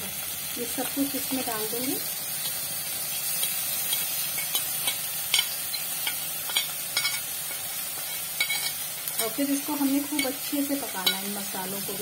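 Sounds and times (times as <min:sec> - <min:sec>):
paste sizzling in hot oil: 0:00.0 - 0:12.0
spoon scraping pan: 0:03.3 - 0:11.6.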